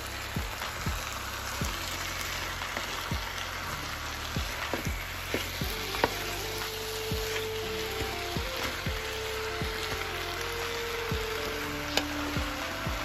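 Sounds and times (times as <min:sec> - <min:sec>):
potatoes sizzling in a skillet: 0:00.0 - 0:13.0
wooden spoon scraping a pan: 0:04.6 - 0:06.6.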